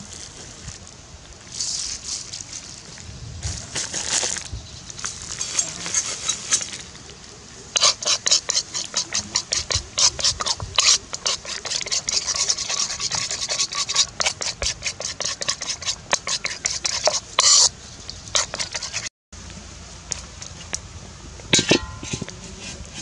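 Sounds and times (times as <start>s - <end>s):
metal spoon scraping wok: 5.3s - 6.8s, 7.8s - 19.1s, 21.5s - 23.0s.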